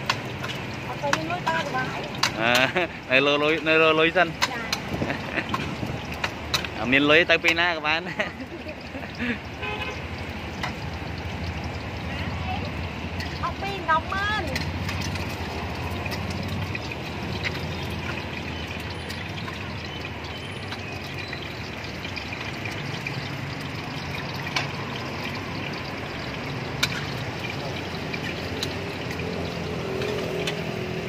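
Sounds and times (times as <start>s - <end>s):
metal spatula clicking on pan: 0.0s - 2.8s, 3.5s - 6.8s, 10.2s - 11.5s, 14.4s - 20.0s, 26.6s - 30.7s
eggs sizzling in hot oil: 0.0s - 31.0s.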